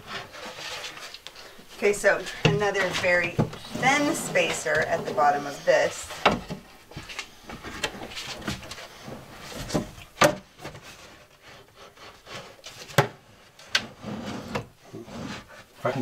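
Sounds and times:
wood scraping on drawer slides: 2.2s - 6.7s, 7.4s - 15.7s.

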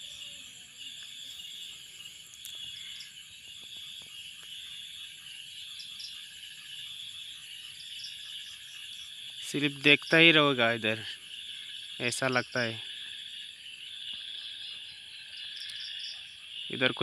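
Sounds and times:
insects chorus: 0.0s - 17.0s
faint ticks: 2.3s - 4.6s, 15.6s - 16.0s.

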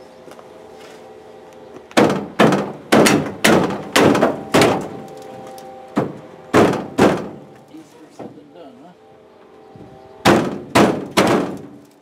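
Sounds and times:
hard thuds on metal rail: 2.0s - 5.0s, 6.0s - 7.5s, 10.2s - 11.8s.

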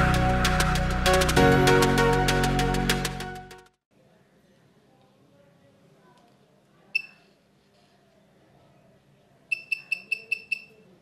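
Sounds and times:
high-pitched buzzer beeps: 9.5s - 10.8s.

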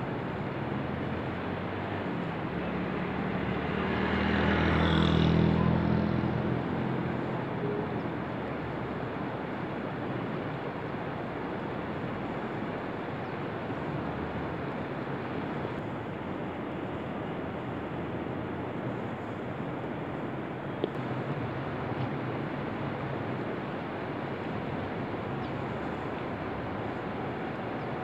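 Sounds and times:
river water rushing: 0.0s - 28.0s
motor vehicle passing: 2.7s - 7.2s.

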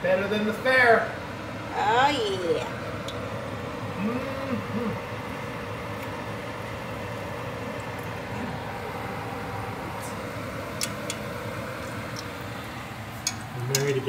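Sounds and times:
hot oil sizzling and bubbling: 4.6s - 14.0s.

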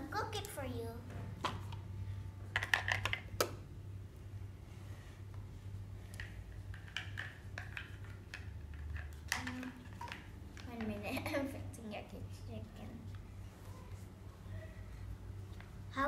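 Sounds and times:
steady low hum: 0.0s - 16.0s
plastic toys clattering: 2.5s - 3.3s, 6.1s - 11.0s.

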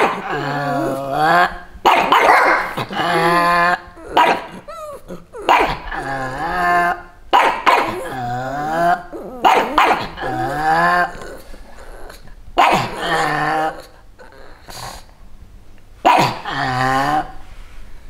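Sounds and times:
dog whining: 0.0s - 15.1s
dogs howling barks: 1.9s - 11.1s.

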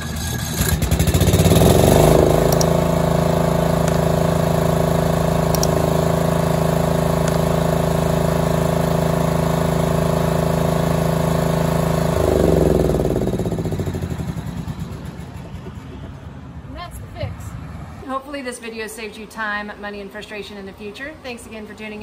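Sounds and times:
riding mower engine running: 0.0s - 16.7s.

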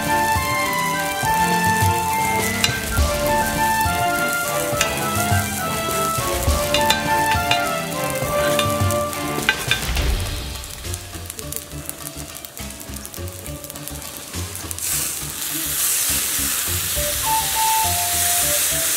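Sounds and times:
background music: 0.0s - 18.9s
rice sizzling on griddle: 0.0s - 18.9s
metal scraper on griddle: 2.6s - 3.1s, 6.6s - 7.7s, 8.4s - 10.0s.

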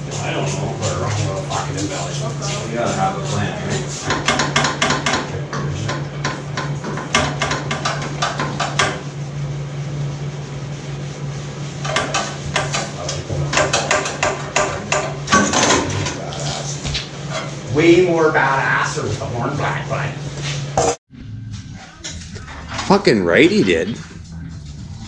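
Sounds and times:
low hum: 21.1s - 25.0s.

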